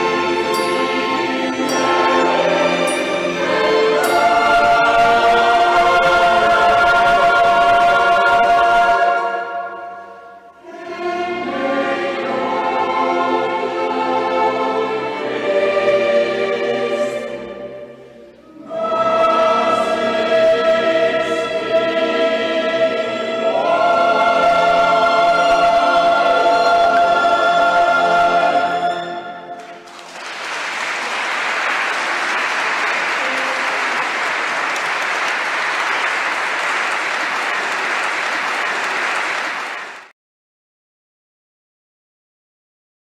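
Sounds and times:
classical music with singing voices: 0.0 - 40.1
audience applause: 29.6 - 40.1.

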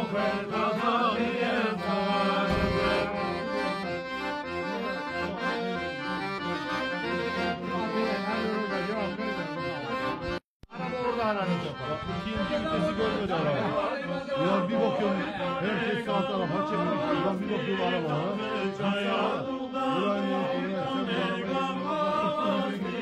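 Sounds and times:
accordion folk tune: 0.0 - 23.0
man singing: 10.7 - 23.0.

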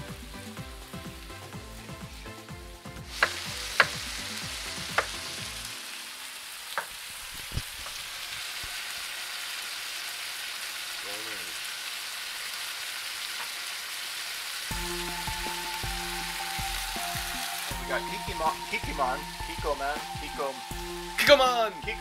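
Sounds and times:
music with low beat: 0.0 - 5.7, 14.7 - 22.0
stir fry sizzling in pan: 0.0 - 22.0.

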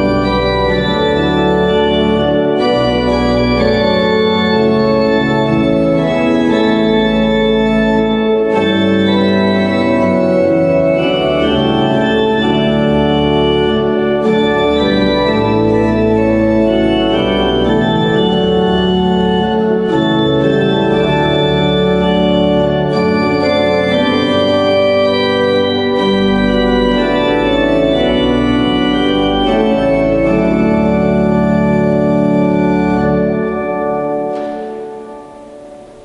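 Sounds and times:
organ chords: 0.0 - 36.0.

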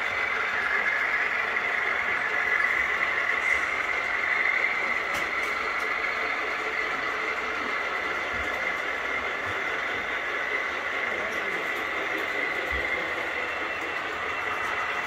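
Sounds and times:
model trains rolling: 0.0 - 15.0.

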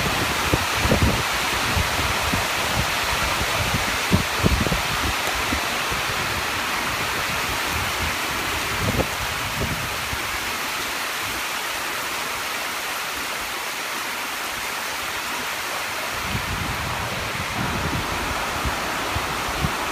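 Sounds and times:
wind buffeting microphone: 0.0 - 10.5, 16.0 - 19.9
heavy rain on water: 0.0 - 19.9.

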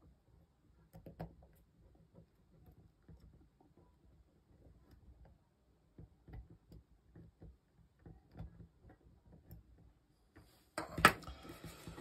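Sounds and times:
small clicks on breadboard: 4.8 - 9.9.

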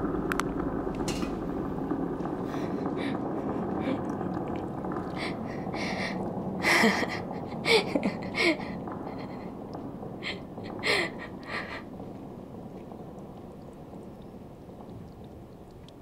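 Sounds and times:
woman gasping: 2.5 - 4.0, 5.1 - 9.5, 10.2 - 11.9.

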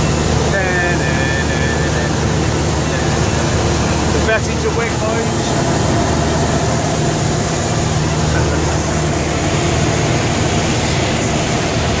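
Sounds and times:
light aircraft engine drone: 0.0 - 12.0
air rushing over airframe: 3.2 - 12.0.

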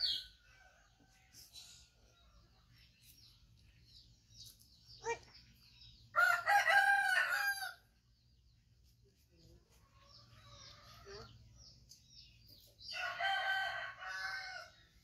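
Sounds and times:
rooster crowing: 6.2 - 7.8, 12.9 - 14.7.

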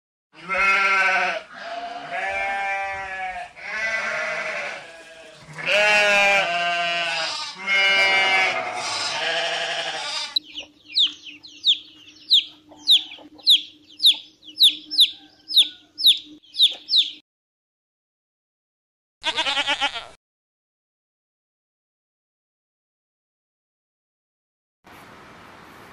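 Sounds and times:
sheep bleating: 0.4 - 10.4, 19.2 - 20.2.

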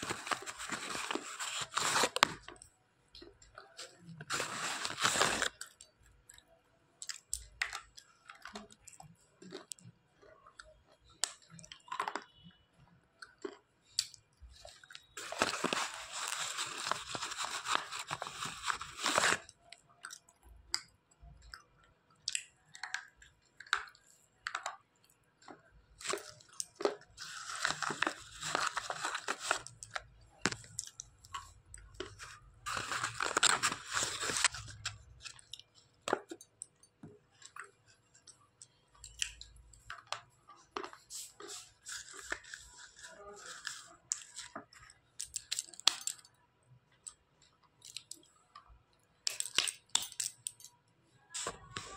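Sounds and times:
person chewing with gritty crunching: 5.4 - 50.4
small crunches and clicks: 22.2 - 46.3.

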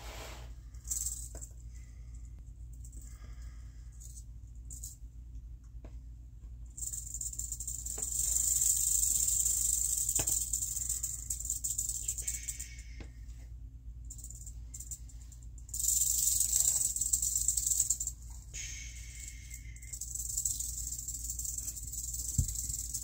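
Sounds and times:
rattlesnake rattling: 6.8 - 13.0, 14.1 - 23.0.

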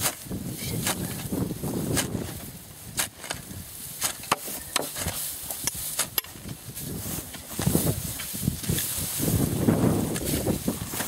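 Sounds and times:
shovel scraping into earth: 0.0 - 11.0.

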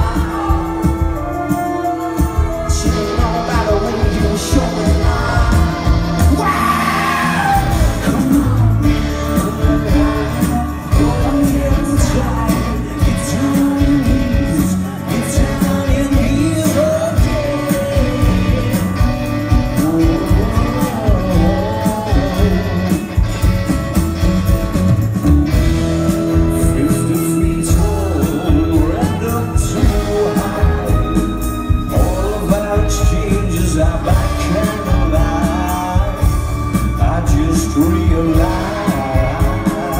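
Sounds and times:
man singing lead vocal: 0.0 - 23.7, 25.5 - 39.9
drums: 0.0 - 39.9
electric guitars: 0.0 - 39.9.

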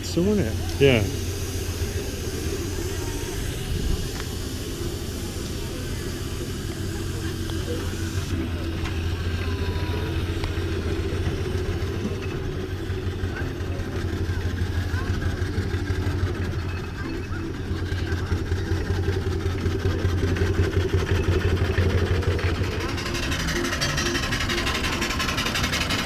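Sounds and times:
steam engine hissing steam: 0.0 - 16.9, 17.7 - 26.0.

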